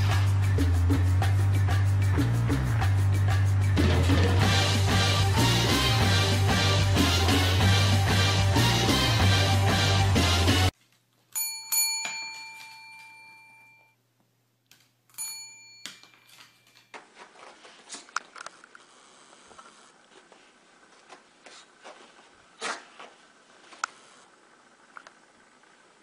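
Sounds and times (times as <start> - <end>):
loud music: 0.0 - 10.7
desk service bell ringing: 11.4 - 14.0, 15.1 - 16.8
faint scuffling: 16.1 - 18.6, 19.4 - 23.8.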